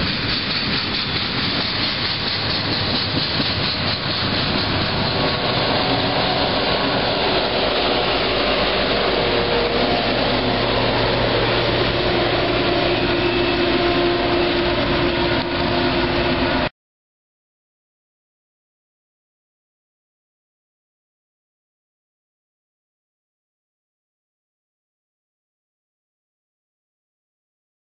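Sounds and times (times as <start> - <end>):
diesel locomotives droning: 0.0 - 16.7
train wheels clattering on rail: 0.0 - 16.7.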